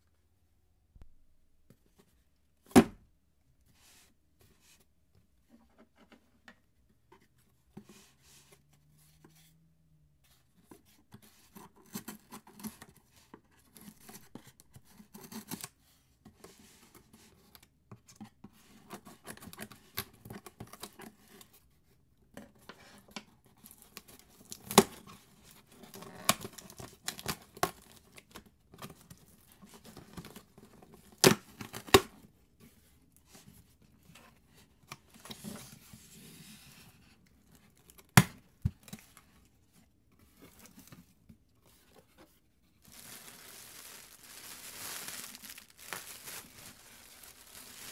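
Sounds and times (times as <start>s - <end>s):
packing tape cut and torn: 42.9s - 47.9s.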